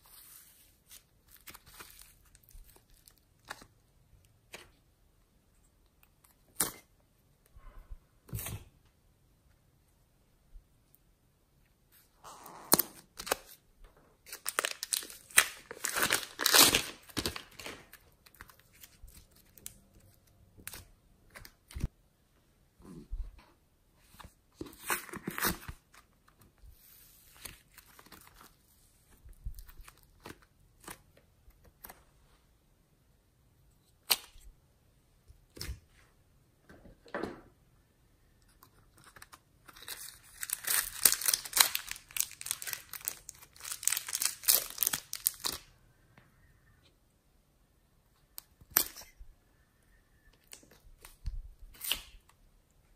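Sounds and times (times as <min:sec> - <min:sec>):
plastic wrapping crinkling and tearing: 0:14.2 - 0:21.9, 0:39.0 - 0:45.7
plastic packet crinkling: 0:14.3 - 0:19.8, 0:39.7 - 0:45.7.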